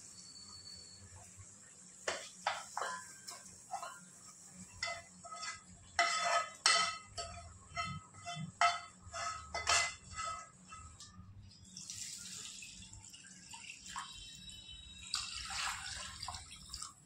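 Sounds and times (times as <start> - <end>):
steel utensils clinking: 2.1 - 11.2.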